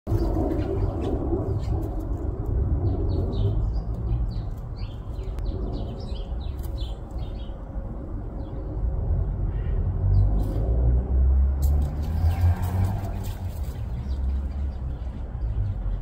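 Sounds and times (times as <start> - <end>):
steady low rumble: 0.1 - 16.0
small birds chirping: 2.8 - 7.7, 11.9 - 16.0.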